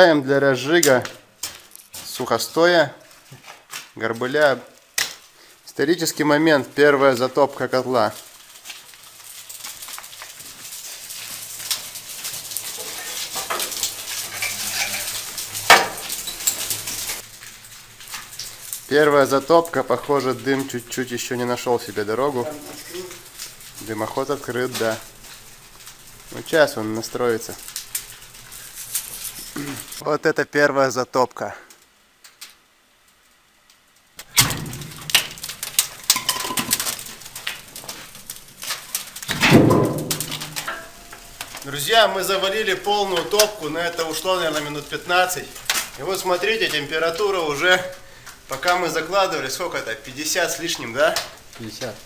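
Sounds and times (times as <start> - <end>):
kindling crackling: 0.0 - 52.0
wood clattering on wood and steel: 8.0 - 18.9, 34.2 - 47.7
logs knocking against metal: 39.3 - 41.6.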